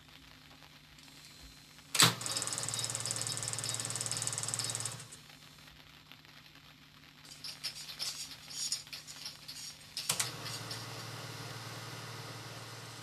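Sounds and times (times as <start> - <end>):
film projector clattering: 2.0 - 5.2, 7.3 - 13.0
hands rattling projector mechanism: 7.3 - 10.8.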